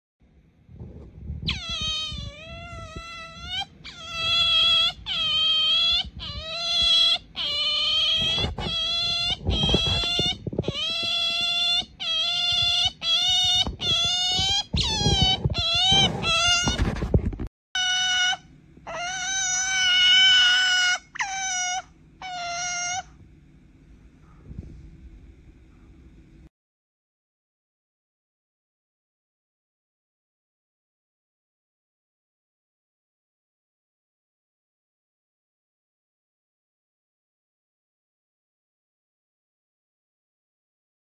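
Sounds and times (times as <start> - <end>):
otter whining calls: 1.5 - 17.0, 17.8 - 23.2.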